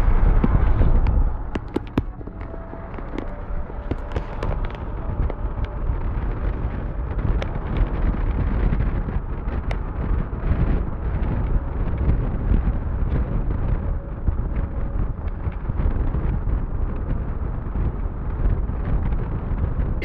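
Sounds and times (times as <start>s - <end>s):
road and traffic noise: 0.0s - 20.0s
wind buffeting microphone: 0.0s - 20.0s.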